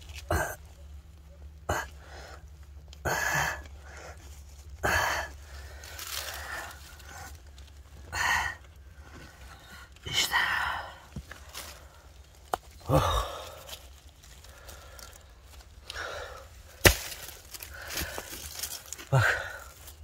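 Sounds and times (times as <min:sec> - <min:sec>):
hand tools scraping stones: 0:16.7 - 0:20.0.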